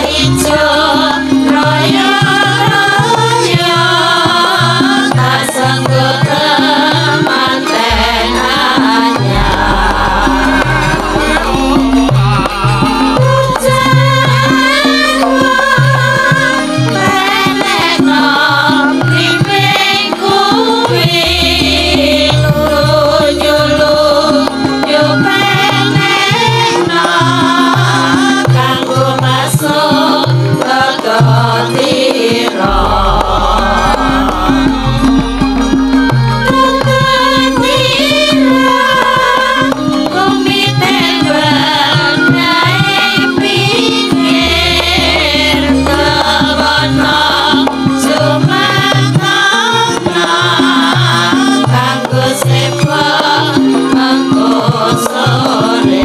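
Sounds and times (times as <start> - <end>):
hand drum patterns: 0.0 - 56.0
wavering singing: 0.0 - 56.0
gamelan metallophones: 7.7 - 15.4, 32.6 - 38.9.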